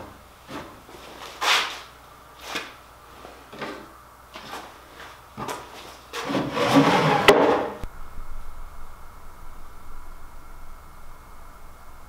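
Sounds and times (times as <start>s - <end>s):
wood sliding on wood: 4.4s - 7.8s
wood scraping and knocking: 5.4s - 7.8s.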